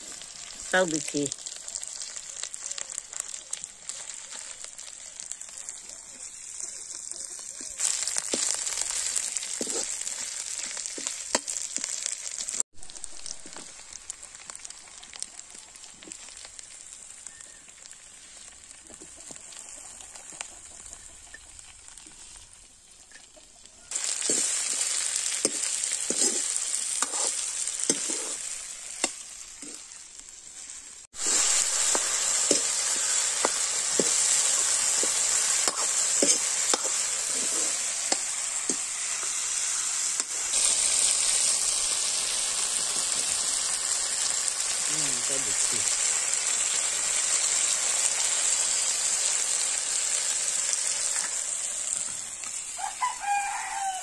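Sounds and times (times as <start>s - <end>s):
food sizzling in oil: 0.0s - 54.0s.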